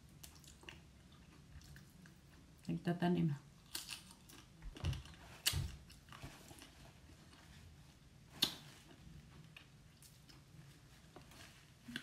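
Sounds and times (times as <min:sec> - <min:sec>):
person chewing: 0:00.0 - 0:02.6, 0:03.6 - 0:07.5, 0:11.6 - 0:12.0.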